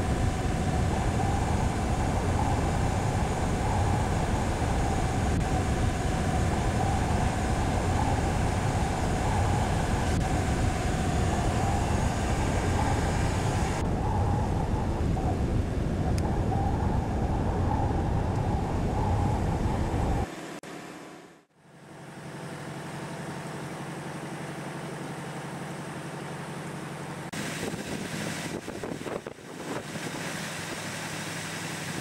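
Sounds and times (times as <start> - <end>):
hiss: 0.0 - 14.4
boat engine rumbling: 0.0 - 20.3.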